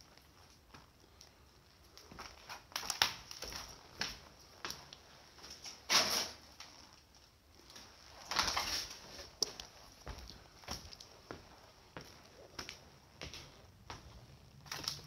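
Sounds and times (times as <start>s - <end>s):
footsteps crunching over debris: 1.8s - 5.9s, 7.6s - 15.0s.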